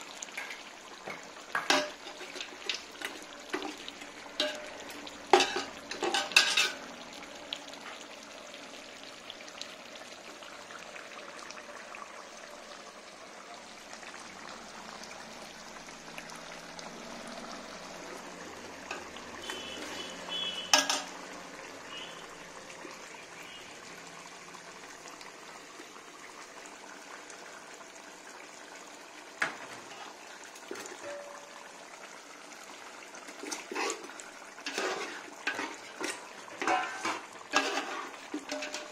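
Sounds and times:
hot pot sizzling: 0:00.0 - 0:38.9
ladle scraping a metal pot: 0:04.4 - 0:06.8, 0:18.9 - 0:21.2, 0:33.3 - 0:38.9.

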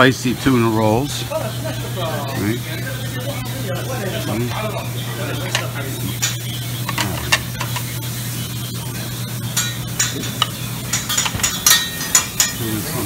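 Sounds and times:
low hum and hiss: 0:00.0 - 0:13.0
plates and utensils clinking: 0:04.0 - 0:08.2, 0:09.3 - 0:13.0.

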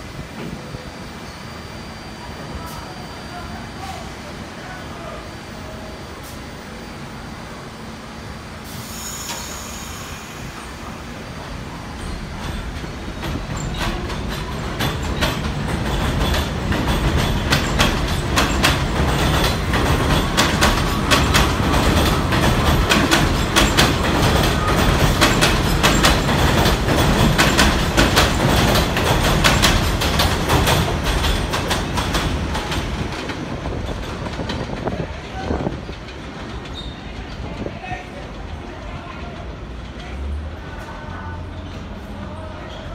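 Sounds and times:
train wheels clattering over rail joints: 0:12.0 - 0:37.8.

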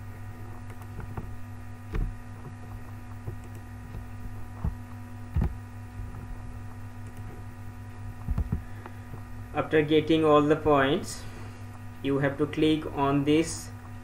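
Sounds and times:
mains hum: 0:00.0 - 0:14.0
keyboard and mouse clicks: 0:00.6 - 0:01.3, 0:02.8 - 0:05.6, 0:07.0 - 0:07.4, 0:08.2 - 0:08.6
low thumps: 0:01.0 - 0:06.7, 0:08.1 - 0:09.3.

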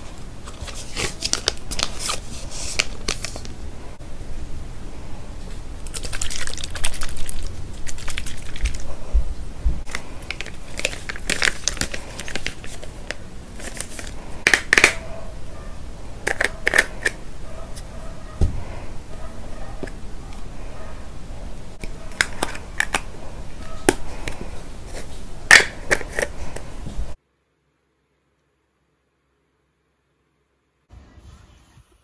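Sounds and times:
plastic packaging crinkling: 0:00.4 - 0:03.6, 0:05.8 - 0:08.9, 0:09.9 - 0:15.0.

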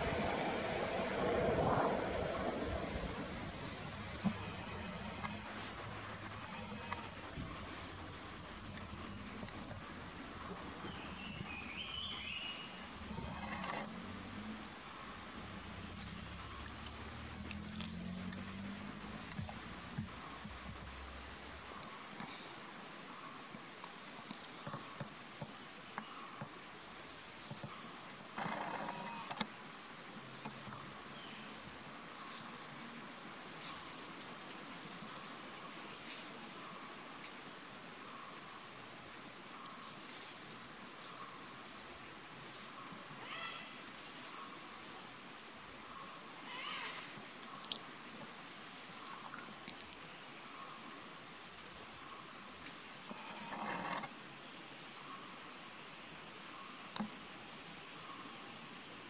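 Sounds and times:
noisy swell: 0:00.0 - 0:06.5
insects buzzing: 0:00.0 - 0:59.0.

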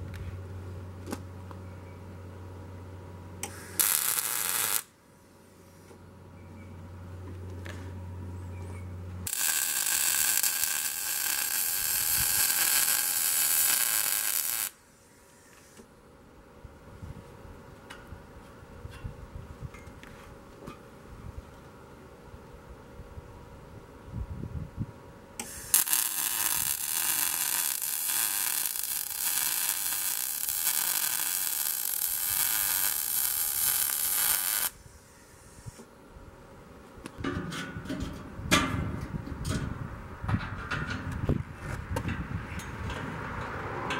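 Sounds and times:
welder arc crackling: 0:03.4 - 0:04.9, 0:09.2 - 0:14.8, 0:25.4 - 0:34.8.

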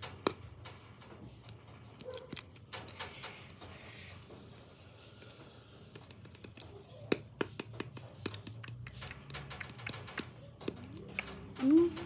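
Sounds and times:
hands tapping and clicking: 0:05.8 - 0:12.0.

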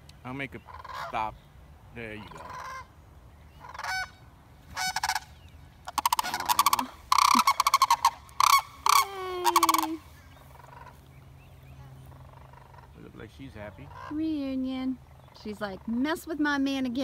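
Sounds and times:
cranes calling in rattling bugles: 0:00.5 - 0:01.3, 0:02.1 - 0:02.9, 0:03.6 - 0:11.1, 0:12.0 - 0:14.7.

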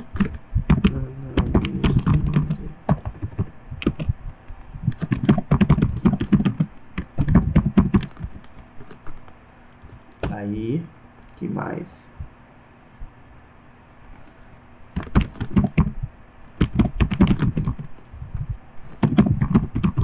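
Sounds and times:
computer keyboard typing: 0:00.0 - 0:04.1, 0:04.9 - 0:09.2, 0:09.8 - 0:10.4, 0:15.0 - 0:18.0, 0:18.8 - 0:20.0.

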